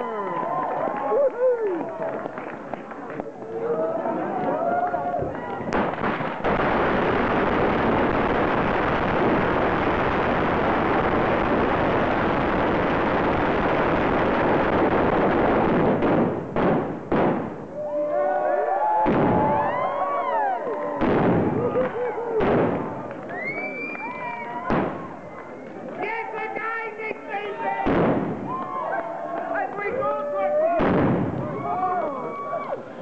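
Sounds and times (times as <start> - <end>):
firecrackers crackling: 0.0 - 18.0, 18.8 - 33.0
loud bangs: 5.7 - 17.7, 21.0 - 23.2, 27.8 - 28.7, 30.8 - 31.7
people shouting: 27.4 - 32.9.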